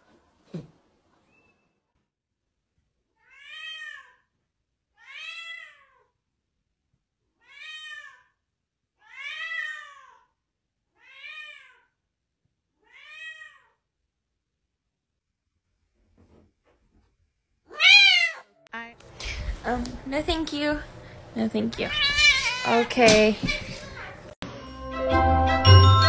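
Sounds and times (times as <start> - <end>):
cat meowing: 3.2 - 4.3, 5.0 - 6.1, 7.4 - 8.3, 9.0 - 10.3, 11.0 - 11.9, 12.8 - 13.8, 17.7 - 18.9, 21.9 - 22.8.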